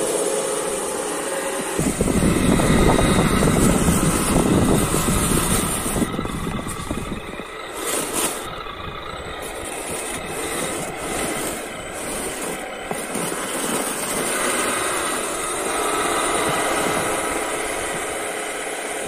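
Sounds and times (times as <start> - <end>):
model truck motor and gears: 0.0 - 19.0
plow blade pushing snow: 0.0 - 19.0.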